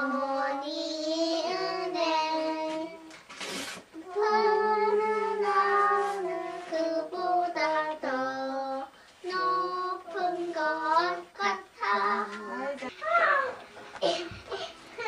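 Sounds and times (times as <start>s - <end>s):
girl singing unaccompanied: 0.0s - 3.2s, 4.0s - 13.1s.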